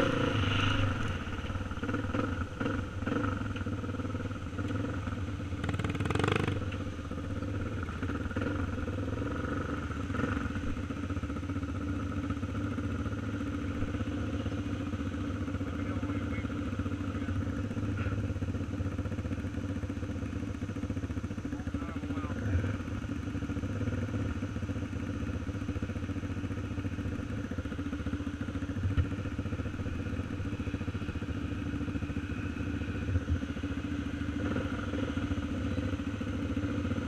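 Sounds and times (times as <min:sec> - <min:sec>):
dirt bike engines idling: 0:00.0 - 0:37.0.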